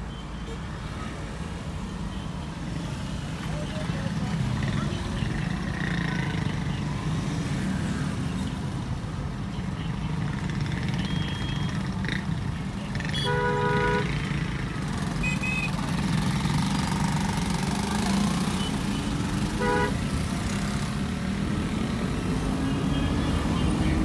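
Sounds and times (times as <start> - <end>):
engine and road rumble: 0.0 - 24.0
car horns honking: 13.0 - 14.3, 15.2 - 15.8, 18.5 - 20.2.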